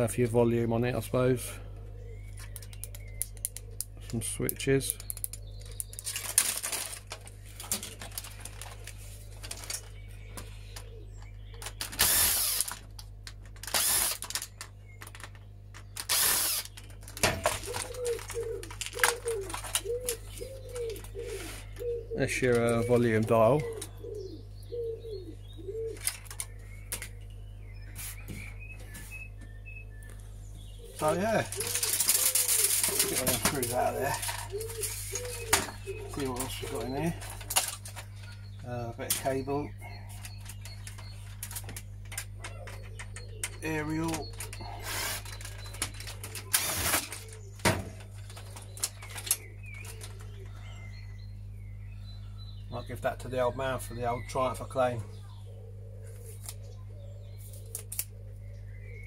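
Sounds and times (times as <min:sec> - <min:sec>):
faint small birds chirping: 0:00.0 - 0:59.0
steady low hum: 0:00.0 - 0:59.0
pigeon cooing: 0:01.4 - 0:04.2, 0:17.2 - 0:26.4, 0:30.8 - 0:51.5, 0:54.2 - 0:59.0.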